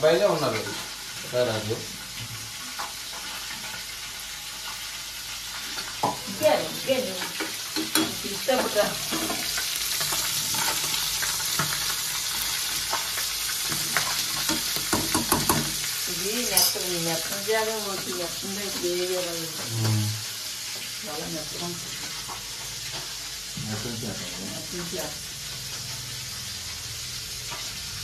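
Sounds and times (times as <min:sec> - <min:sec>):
oil sizzling in pan: 0:00.0 - 0:28.0.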